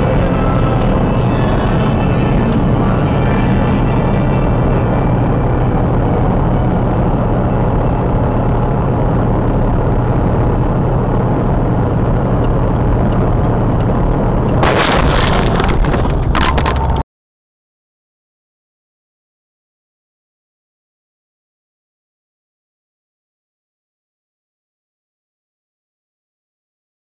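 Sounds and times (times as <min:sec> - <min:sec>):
truck cab rumble: 0:00.0 - 0:17.0
mud and debris striking windshield: 0:14.6 - 0:17.0.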